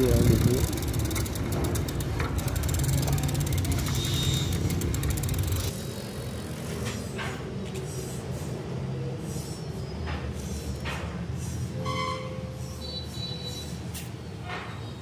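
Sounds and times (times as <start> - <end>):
bike tyres rolling rumble: 0.0 - 7.0
brief high squeal: 11.8 - 13.9.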